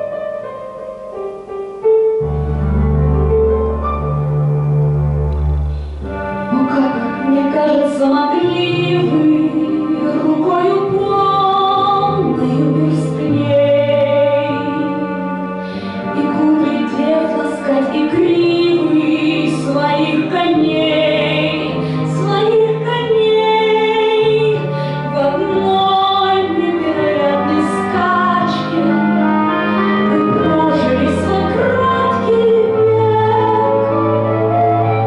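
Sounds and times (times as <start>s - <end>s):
instrumental accompaniment: 0.0s - 35.0s
woman singing with vibrato: 6.2s - 15.4s, 16.0s - 34.0s.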